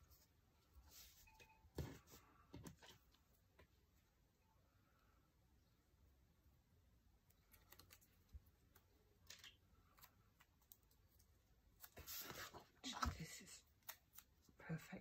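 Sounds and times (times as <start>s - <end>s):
paper rustling: 11.7s - 13.1s.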